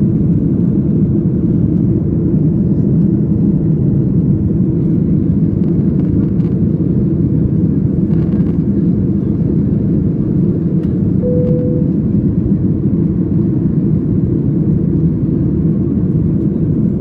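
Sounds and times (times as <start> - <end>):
airliner cabin engine rumble: 0.0 - 17.0
short steady tone: 11.2 - 12.0.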